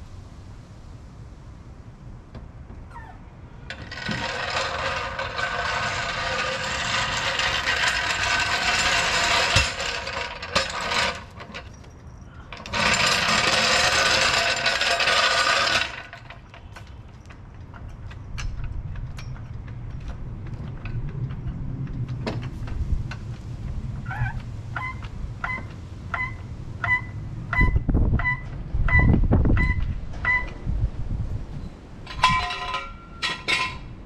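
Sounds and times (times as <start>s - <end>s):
floor jack rolling on concrete: 3.6s - 26.5s, 31.9s - 34.0s.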